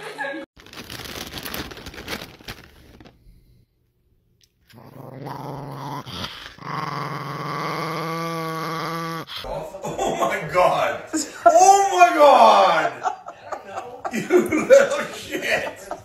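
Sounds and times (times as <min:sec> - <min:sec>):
small dog growling: 0:04.7 - 0:09.5.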